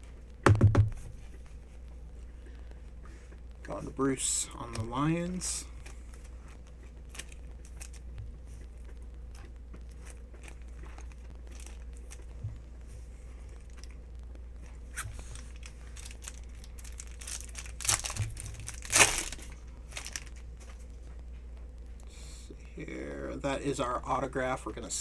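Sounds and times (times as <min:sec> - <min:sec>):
foil pack tearing and crinkling: 0:07.1 - 0:08.1, 0:10.0 - 0:12.3, 0:14.9 - 0:20.4
cards rustling and clicking: 0:14.9 - 0:20.9.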